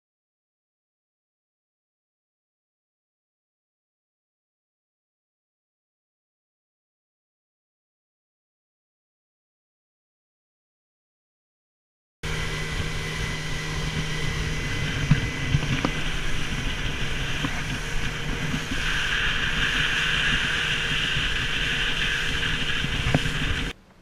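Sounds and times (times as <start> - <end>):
motorboat engine running: 12.2 - 24.0
wind noise on microphone: 12.2 - 24.0
hull thumping on waves: 12.3 - 24.0.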